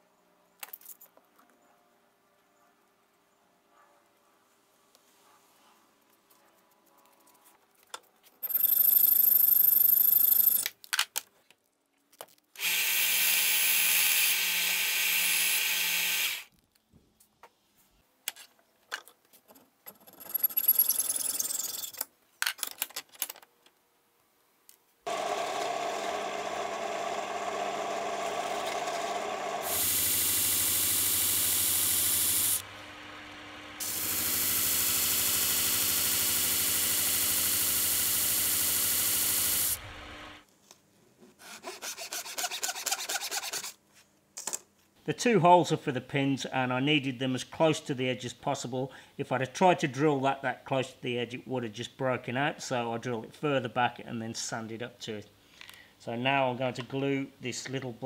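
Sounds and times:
hacksaw cutting steel nails: 12.6s - 16.5s, 28.2s - 32.6s, 33.8s - 39.8s
power drill drilling wood: 12.6s - 16.5s, 25.1s - 40.4s
disc sander grinding wood: 25.1s - 40.4s.

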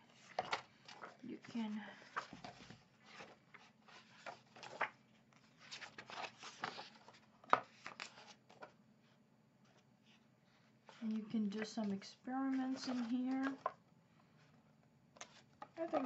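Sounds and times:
book pages turning: 0.0s - 8.8s, 10.8s - 13.8s, 15.1s - 16.0s.

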